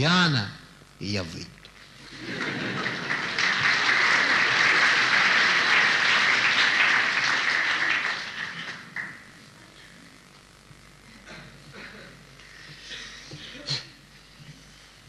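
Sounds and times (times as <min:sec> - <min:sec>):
audience applauding: 0:02.0 - 0:09.3.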